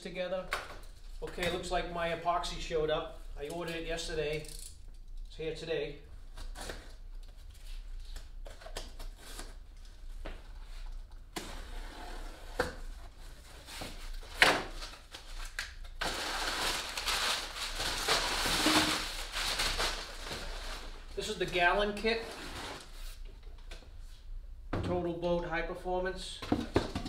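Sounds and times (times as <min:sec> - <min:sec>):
packing paper crinkling: 0:14.2 - 0:21.2.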